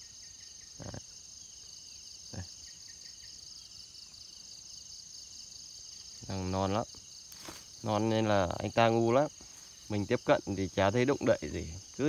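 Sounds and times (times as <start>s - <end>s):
insects chirring: 0.0s - 12.0s
soft handling sounds: 7.3s - 7.8s.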